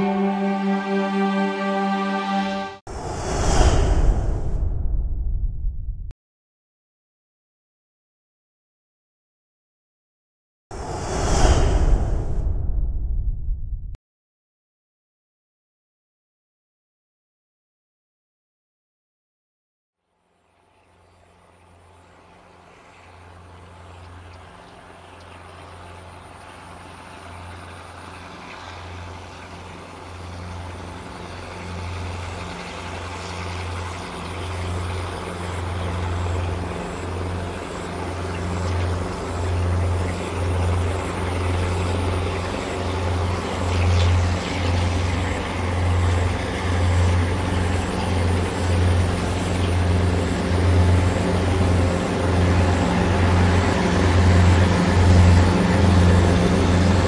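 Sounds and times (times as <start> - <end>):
locomotive engines droning: 0.0 - 2.8, 20.2 - 57.0.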